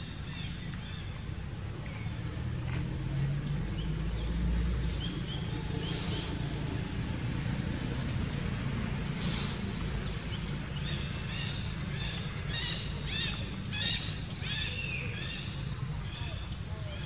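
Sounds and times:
brief high hisses: 5.8 - 6.4, 9.2 - 9.6.

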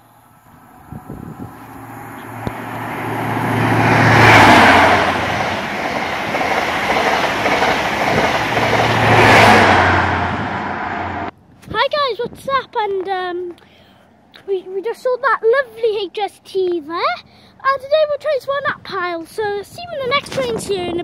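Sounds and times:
wheels rushing on rails: 0.0 - 11.3
diesel train engine hum: 0.0 - 11.5.

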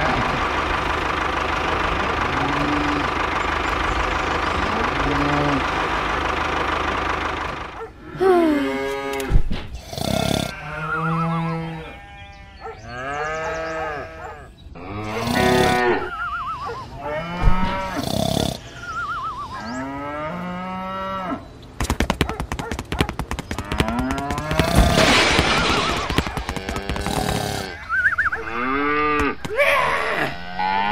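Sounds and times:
cattle mooing: 2.0 - 3.1, 4.5 - 5.7, 10.0 - 21.4, 23.6 - 30.9
fast even rattling: 21.8 - 27.8.

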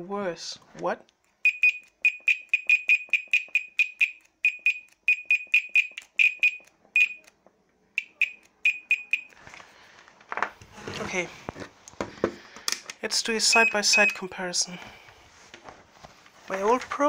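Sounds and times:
multimeter short high beeps: 1.4 - 7.3, 8.0 - 9.4, 13.5 - 14.2.

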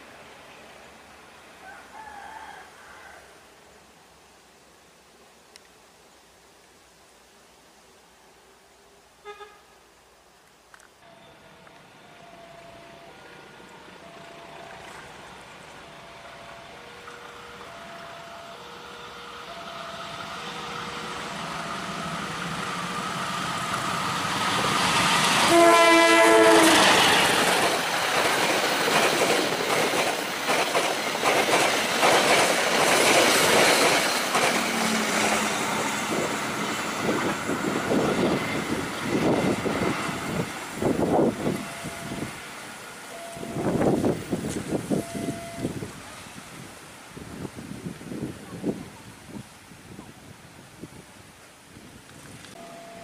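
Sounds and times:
train horn blast: 9.2 - 9.8, 25.4 - 27.2
locomotive approaching: 10.7 - 49.3, 52.0 - 53.0
train wheels clattering: 26.4 - 35.6.

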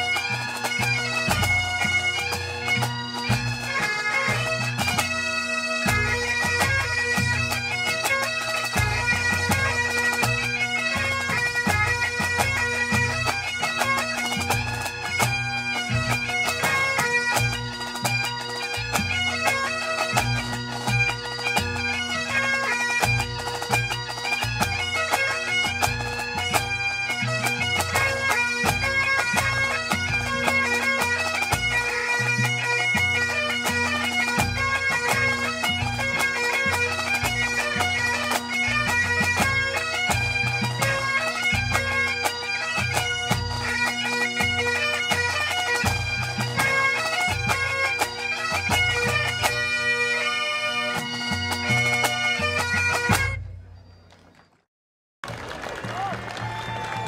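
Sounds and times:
bagpipes with drones: 0.0 - 54.5
drums beating: 55.2 - 57.0.

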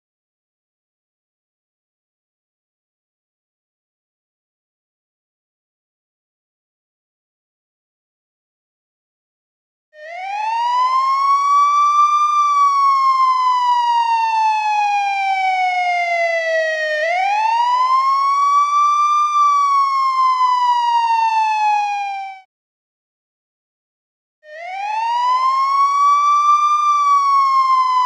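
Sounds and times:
police siren wailing: 10.0 - 22.5, 24.5 - 28.0.

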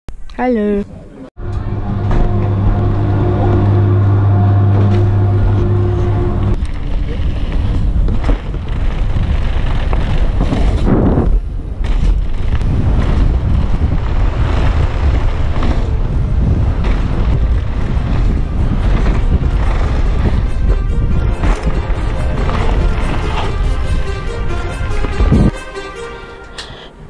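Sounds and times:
wind rushing over microphone: 1.4 - 25.6
bike rattling: 6.2 - 25.5
tyres rolling on gravel: 6.6 - 24.5.

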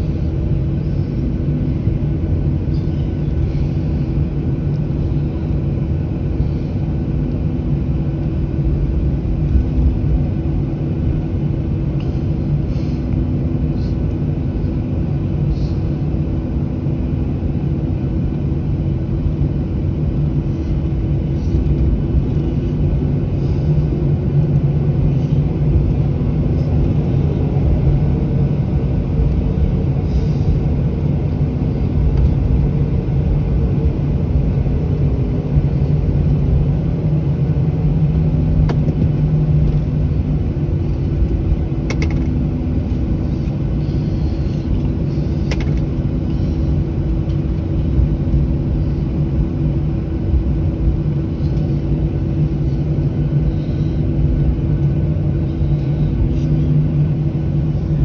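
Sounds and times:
constant low hum: 0.0 - 58.0
engine and airflow rumble: 0.0 - 58.0.

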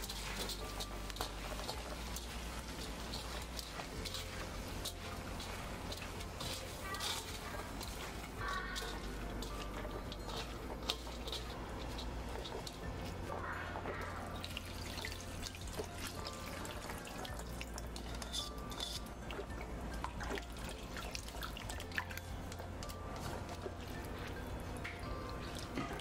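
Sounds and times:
small crackles and drips: 0.0 - 26.0.

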